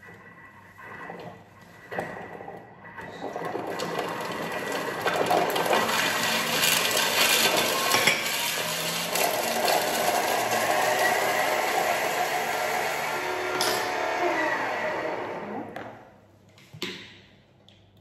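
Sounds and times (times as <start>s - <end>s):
food processor whirring: 3.1s - 16.0s
bowl contents churning and rattling: 3.3s - 12.7s.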